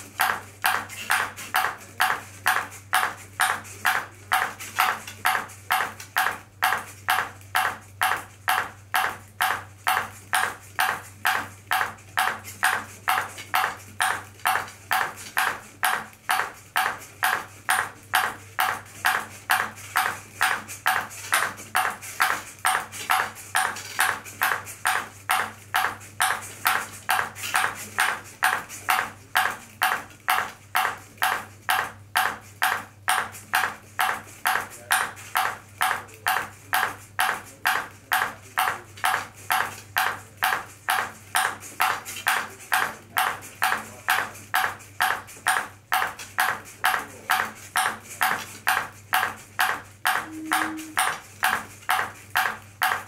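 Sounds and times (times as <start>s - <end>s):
ping pong ball bouncing on paddle: 42.7s - 53.0s.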